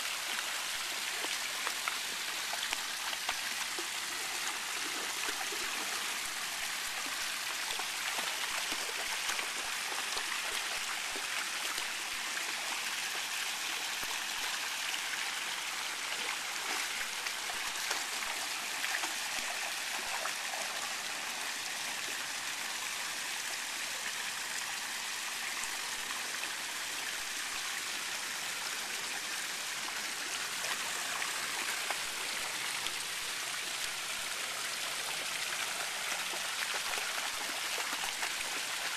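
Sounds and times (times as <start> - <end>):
fountain water splattering into pool: 0.0 - 14.6, 30.6 - 38.9
dog paws sloshing through water: 36.6 - 38.9.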